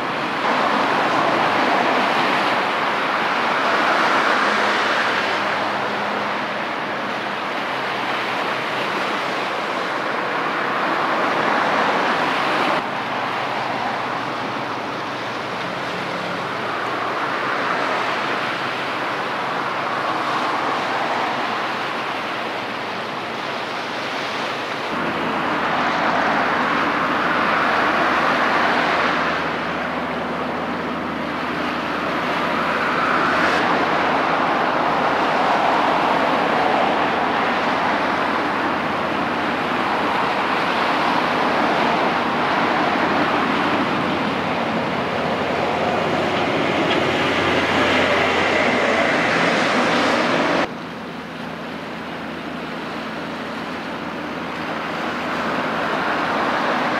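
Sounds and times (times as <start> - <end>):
ship bow wave rushing: 0.0 - 50.7
ship engine low drone: 0.0 - 56.9.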